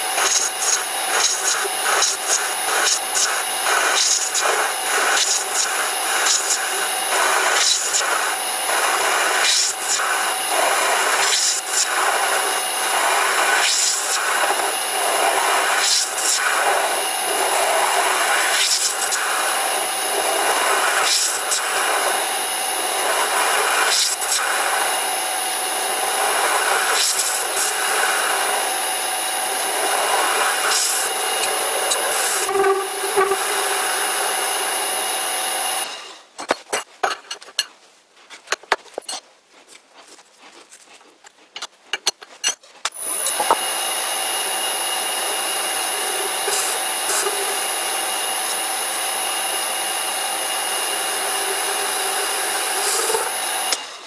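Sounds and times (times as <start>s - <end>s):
metal lathe running with high whine: 0.0s - 36.2s, 42.9s - 54.0s
tool scraping metal chips: 0.1s - 19.2s, 20.2s - 22.2s, 23.0s - 24.6s, 26.2s - 27.8s, 29.6s - 34.1s, 35.7s - 43.6s, 45.3s - 47.7s, 51.2s - 53.8s.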